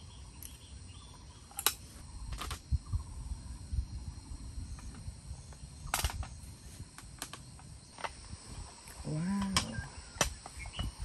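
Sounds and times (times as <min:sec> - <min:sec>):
short low voice sound: 0:09.0 - 0:09.9.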